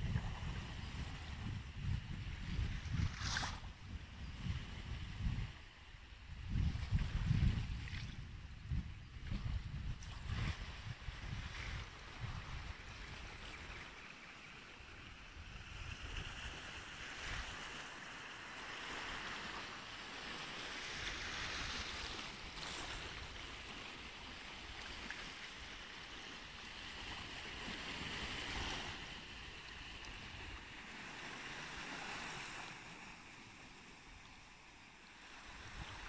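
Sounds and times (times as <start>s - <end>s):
small waves washing on beach: 0.0s - 8.5s, 9.2s - 36.0s
wind rumbling on microphone: 0.0s - 13.9s, 15.2s - 17.8s, 35.3s - 36.0s.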